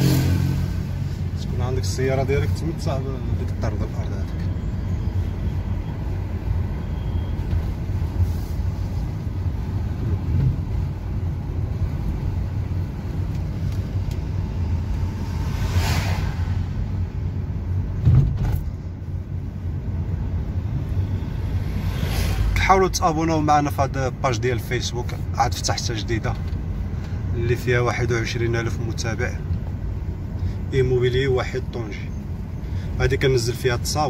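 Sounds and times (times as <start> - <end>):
vehicle rushing past: 0.0 - 1.4, 12.4 - 18.2, 20.6 - 23.1
car engine and road rumble: 0.0 - 34.0
thump: 18.0 - 18.7.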